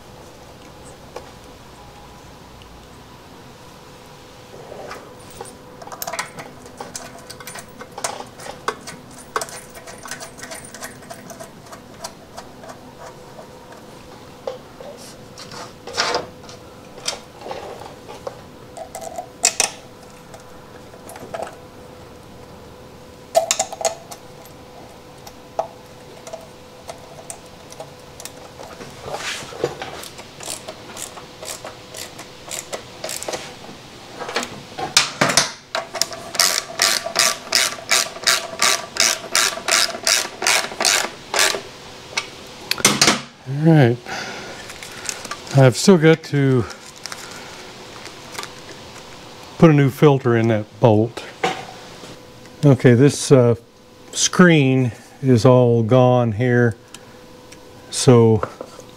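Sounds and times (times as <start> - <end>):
faint steady hum: 0.0 - 58.9
ratchet clicking: 30.4 - 33.4, 36.0 - 41.6.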